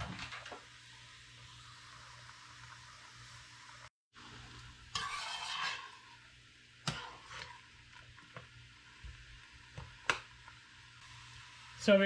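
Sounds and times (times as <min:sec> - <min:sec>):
spoon stirring liquid: 0:05.0 - 0:06.0.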